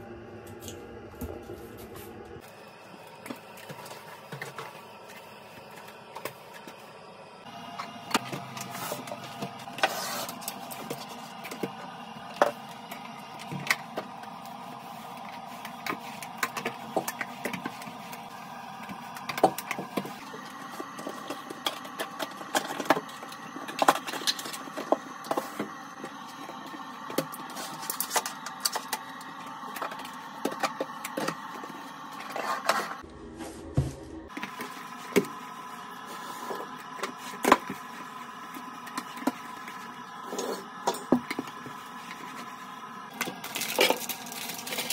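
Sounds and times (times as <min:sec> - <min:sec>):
steady background sound: 0:10.5 - 0:37.1
wipe and mop in use: 0:31.2 - 0:38.6.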